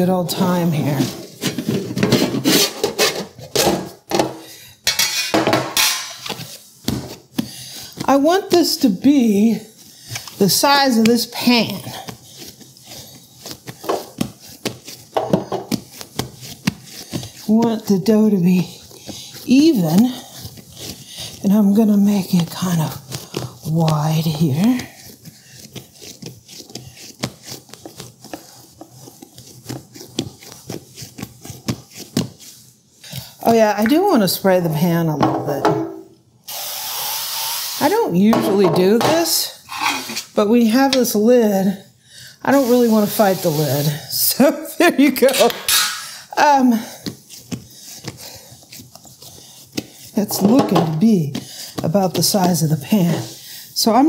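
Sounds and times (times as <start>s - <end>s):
hands patting dough: 0.0s - 35.6s, 37.8s - 39.7s, 42.5s - 54.0s
metal pans clanking and scraping: 0.3s - 7.2s, 15.2s - 15.7s, 38.3s - 41.2s, 45.1s - 46.2s, 50.3s - 51.0s.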